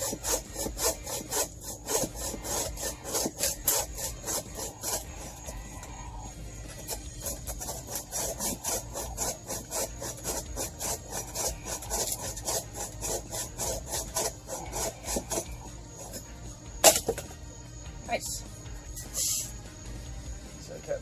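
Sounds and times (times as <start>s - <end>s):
hand saw cutting branch: 0.0s - 5.9s, 6.8s - 17.2s.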